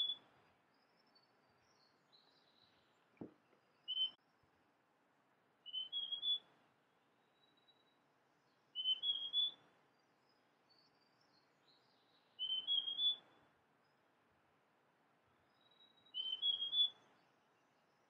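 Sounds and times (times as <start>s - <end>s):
bird whistling song: 0.0s - 0.2s, 3.8s - 4.2s, 5.6s - 6.5s, 8.7s - 9.6s, 10.7s - 13.4s, 15.5s - 17.2s.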